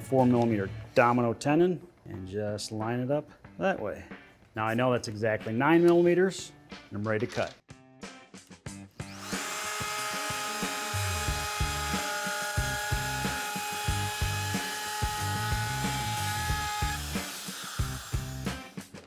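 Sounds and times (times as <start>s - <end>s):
background music with steady beat: 0.0s - 19.0s
router whining while cutting wood: 9.0s - 18.8s.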